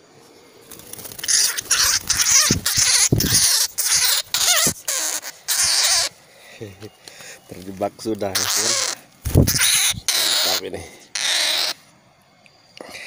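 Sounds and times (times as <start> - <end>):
leaves and twigs rustling: 6.1 - 10.6.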